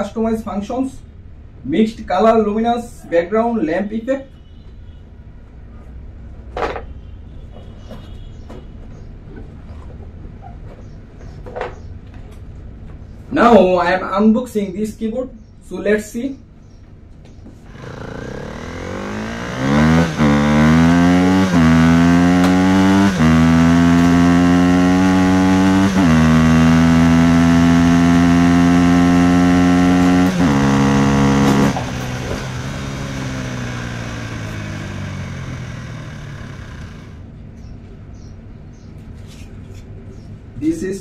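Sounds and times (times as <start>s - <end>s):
vehicle engine revving through gears: 17.7s - 37.2s.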